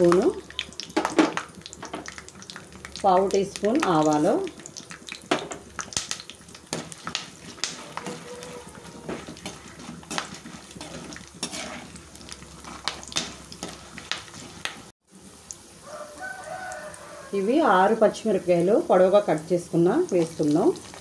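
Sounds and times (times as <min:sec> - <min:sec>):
seeds sizzling and crackling in oil: 0:00.0 - 0:21.0
metal spatula scraping a pan: 0:06.7 - 0:14.8.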